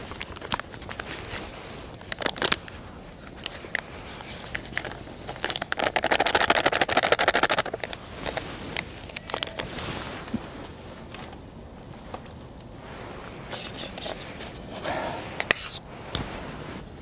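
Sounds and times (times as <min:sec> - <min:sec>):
plastic pouch crinkling: 0:00.0 - 0:02.8, 0:03.4 - 0:08.4.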